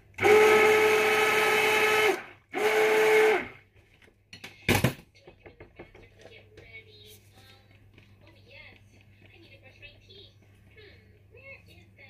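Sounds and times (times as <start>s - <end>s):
stick blender running: 0.0s - 3.7s.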